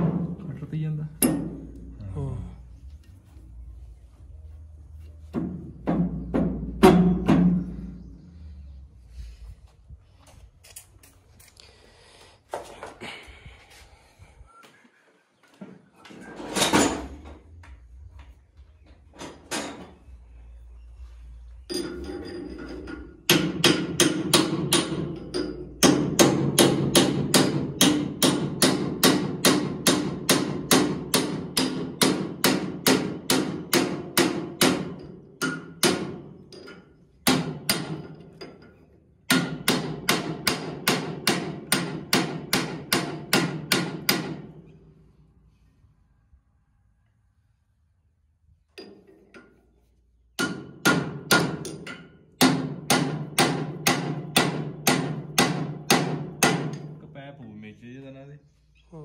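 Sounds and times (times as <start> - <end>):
hammer striking steel chisel: 1.2 - 1.9, 23.3 - 44.5, 50.4 - 56.9.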